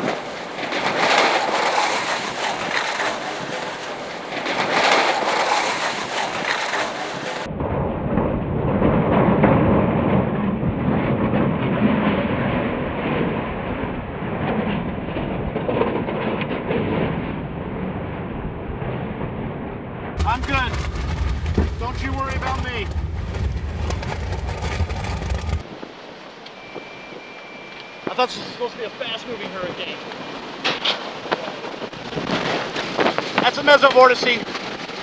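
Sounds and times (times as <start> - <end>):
wind and rain pounding a car: 0.0 - 35.0
heavy low rumble: 7.4 - 25.8.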